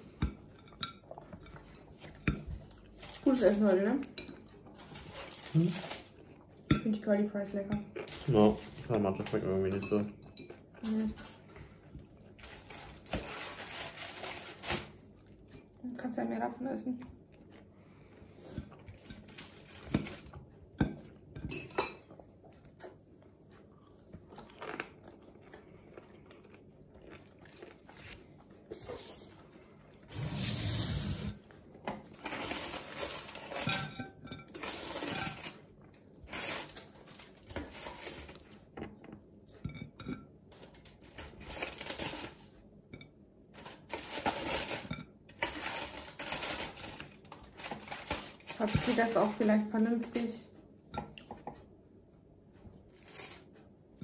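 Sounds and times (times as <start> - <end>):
forks clinking and scraping on plates: 7.7 - 11.4, 32.3 - 35.6
rustling noise: 12.4 - 15.0, 30.1 - 31.5.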